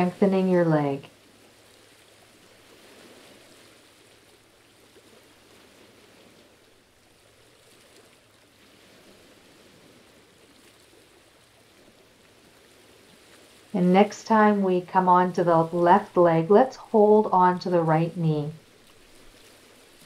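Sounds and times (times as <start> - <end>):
faint background hiss: 0.0 - 1.2, 13.7 - 20.0.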